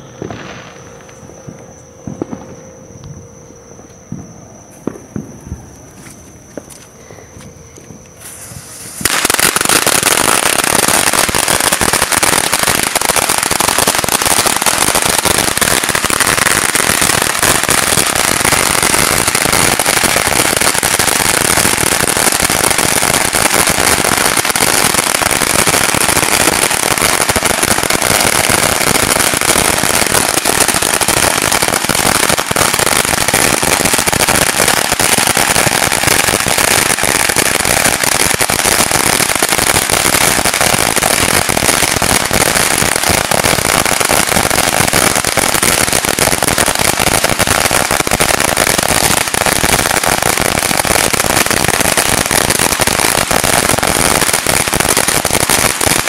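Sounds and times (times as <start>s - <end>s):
firecrackers going off: 0.0s - 2.9s, 8.2s - 56.0s.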